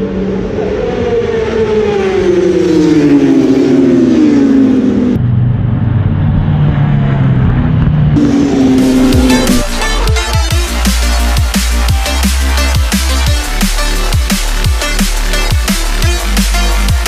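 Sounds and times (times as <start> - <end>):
superbike engine revving: 0.0 - 17.0.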